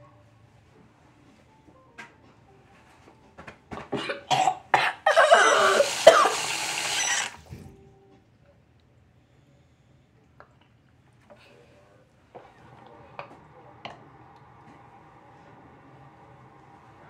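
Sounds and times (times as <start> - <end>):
person coughing: 3.9 - 6.4.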